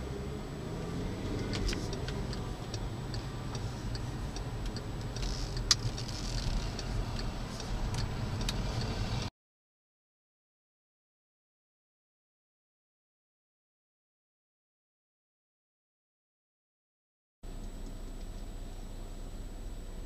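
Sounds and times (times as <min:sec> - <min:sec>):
engine and road rumble: 0:00.0 - 0:09.3, 0:17.4 - 0:20.0
car turn signal ticking: 0:01.3 - 0:09.3, 0:17.5 - 0:18.9.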